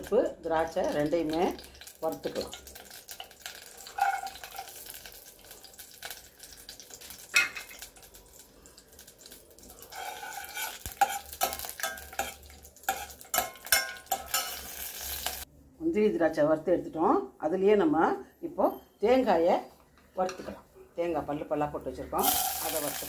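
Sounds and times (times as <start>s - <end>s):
nuts sizzling in hot fat: 0.0s - 15.5s, 22.0s - 23.0s
ladle scraping steel pot: 9.9s - 15.4s.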